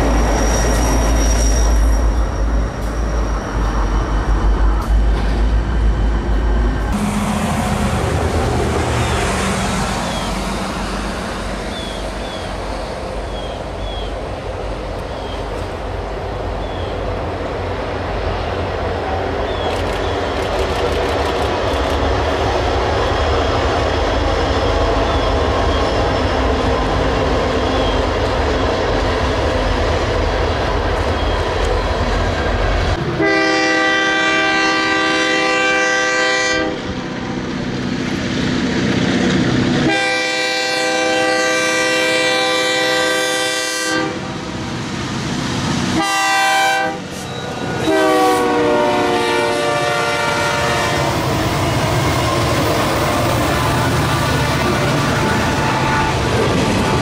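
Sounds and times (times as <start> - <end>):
freight cars clickety-clack: 19.5 - 23.0, 51.3 - 57.0
locomotive air horn blasts: 33.2 - 36.9, 39.8 - 44.4, 46.0 - 51.2, 52.3 - 56.6.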